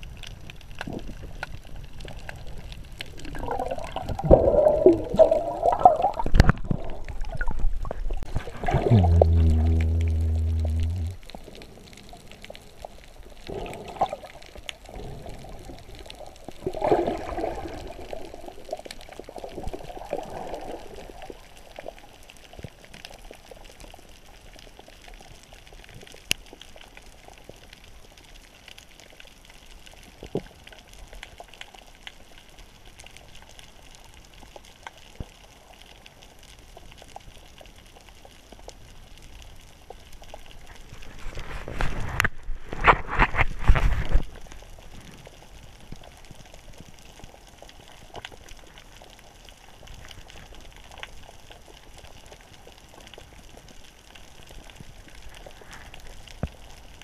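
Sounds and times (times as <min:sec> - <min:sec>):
water bubbling and sloshing: 0:00.0 - 0:23.8, 0:39.7 - 0:57.0.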